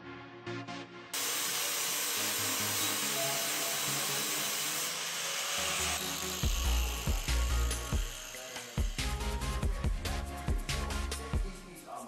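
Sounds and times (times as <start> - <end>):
background music: 0.0 - 12.0
spray-paint can hissing: 1.2 - 9.4.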